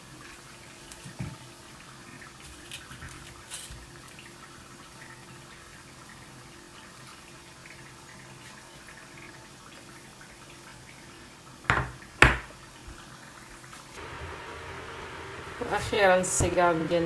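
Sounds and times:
oil sizzling: 0:00.0 - 0:17.0.

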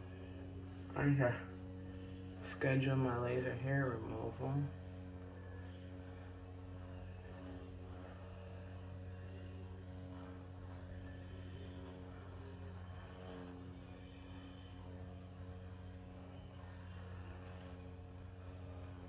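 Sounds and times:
faint mechanical hum: 0:00.0 - 0:19.0.

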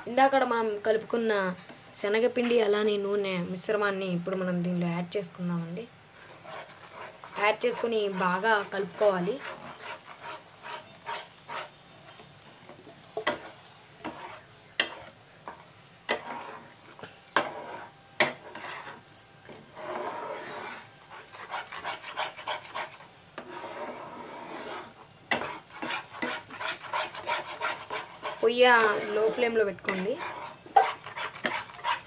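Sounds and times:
spoon scraping pan bottom: 0:06.2 - 0:12.3, 0:13.2 - 0:19.0, 0:19.7 - 0:32.0.

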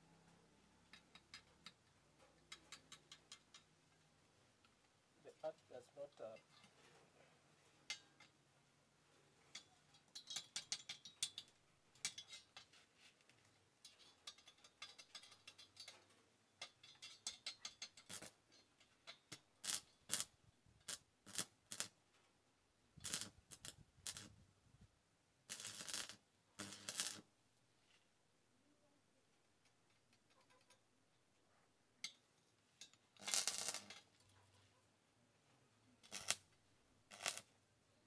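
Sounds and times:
metal tools clicking and rattling: 0:00.9 - 0:03.7, 0:07.8 - 0:08.4, 0:09.5 - 0:20.1.

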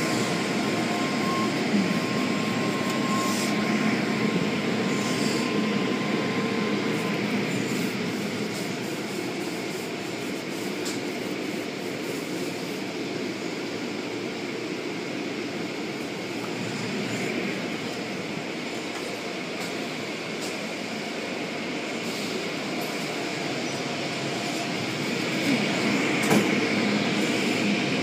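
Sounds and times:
car wash brushes and water spray: 0:06.9 - 0:12.9.

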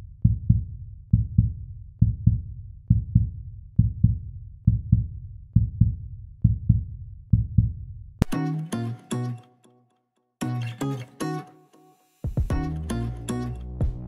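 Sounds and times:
heartbeat thumps: 0:00.2 - 0:07.8, 0:12.3 - 0:12.8, 0:13.8 - 0:14.0.

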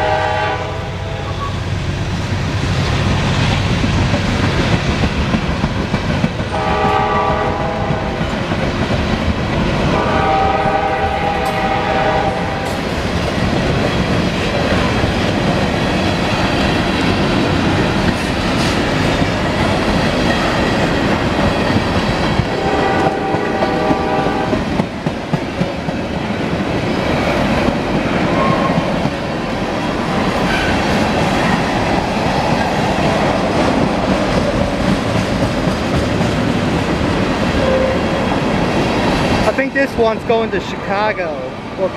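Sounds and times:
train horn: 0:00.0 - 0:01.5, 0:06.5 - 0:08.2, 0:09.9 - 0:12.8, 0:22.5 - 0:24.7, 0:37.6 - 0:38.1
freight train rumbling past: 0:00.0 - 0:41.9.

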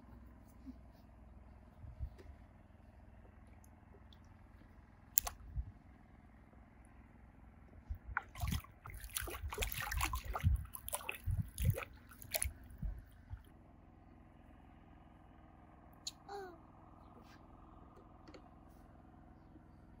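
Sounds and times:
water splashing and sloshing: 0:03.1 - 0:05.7, 0:07.8 - 0:13.5.

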